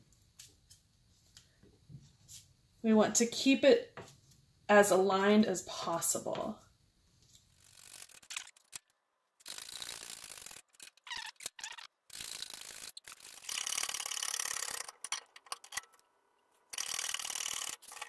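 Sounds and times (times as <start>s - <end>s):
hydraulic jack being pumped: 12.1s - 15.9s, 16.8s - 18.0s.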